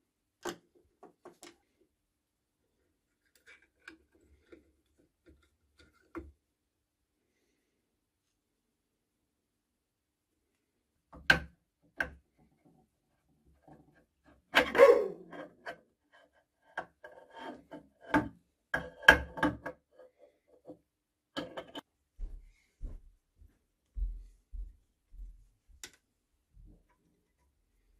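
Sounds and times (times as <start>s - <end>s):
metal clicks and knocks: 21.4s - 21.9s.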